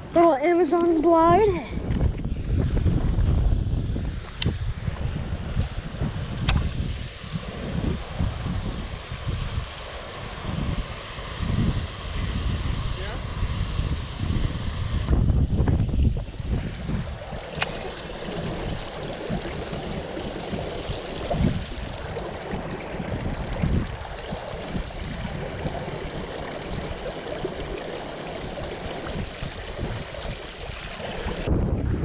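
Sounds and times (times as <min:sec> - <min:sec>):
wind buffeting microphone: 0:00.0 - 0:32.0
sharp click: 0:06.4 - 0:06.7, 0:17.6 - 0:17.8
water rushing through gate: 0:16.1 - 0:31.5.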